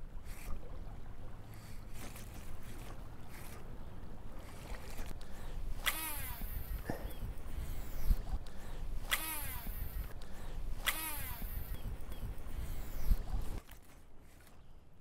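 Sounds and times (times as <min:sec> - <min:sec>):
low rumble of wind: 0:00.0 - 0:15.0
water rumbling: 0:00.0 - 0:15.0
reel spool whirring: 0:01.3 - 0:13.6
fishing reel clicks: 0:04.5 - 0:13.3.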